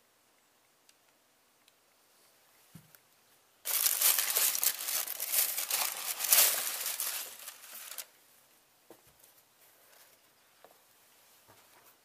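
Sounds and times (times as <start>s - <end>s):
tissue paper crinkling: 3.7s - 8.1s.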